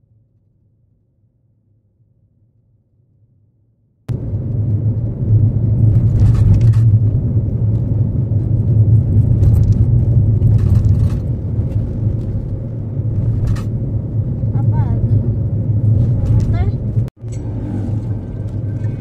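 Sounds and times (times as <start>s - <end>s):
car engine and road noise: 4.1s - 19.0s.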